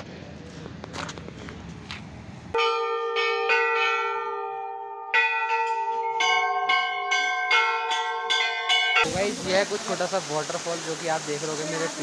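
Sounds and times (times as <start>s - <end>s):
temple bells ringing: 2.6s - 9.2s.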